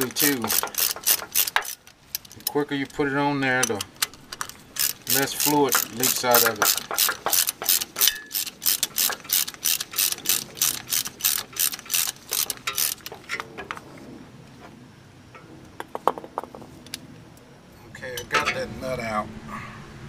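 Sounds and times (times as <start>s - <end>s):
ratchet wrench clicking: 0.0s - 3.0s, 3.6s - 13.4s
light metal clinks: 3.6s - 11.6s.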